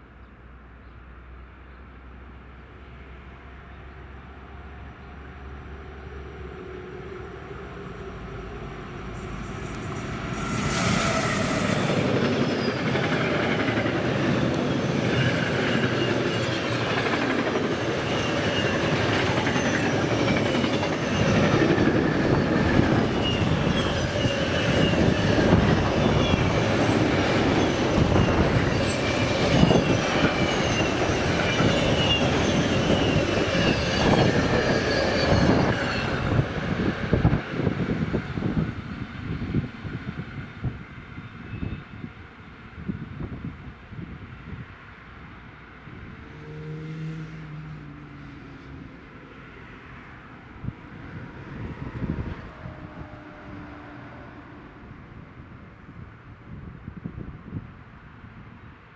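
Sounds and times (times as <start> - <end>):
steel wheels rumbling on rail: 6.2 - 44.7, 45.9 - 57.6
wheel squeals: 9.4 - 36.5.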